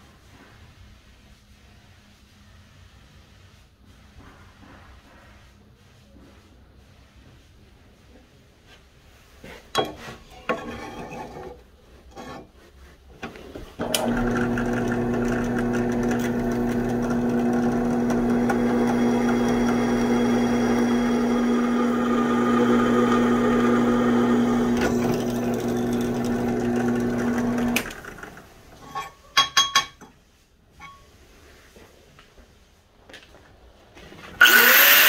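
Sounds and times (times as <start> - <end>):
drill press motor hum: 13.8 - 28.4, 34.4 - 35.0
drill bit cutting steel: 13.9 - 28.0, 34.4 - 35.0.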